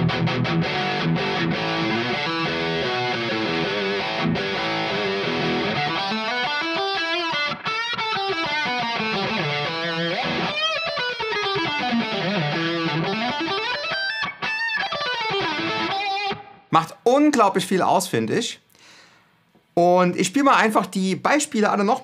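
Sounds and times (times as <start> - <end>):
electric guitar lead line: 0.0 - 16.7.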